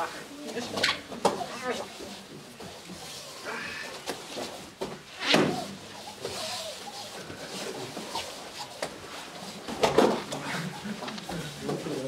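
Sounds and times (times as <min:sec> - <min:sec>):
indistinct voices: 0:05.2 - 0:08.4.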